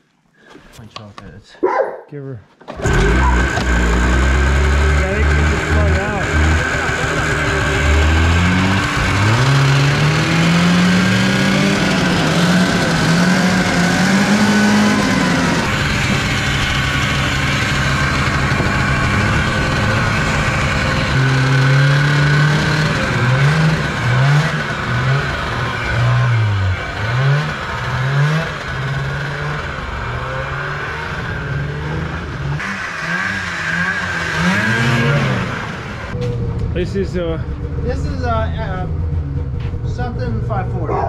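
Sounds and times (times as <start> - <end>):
snowmobile engine revving: 2.7 - 36.2.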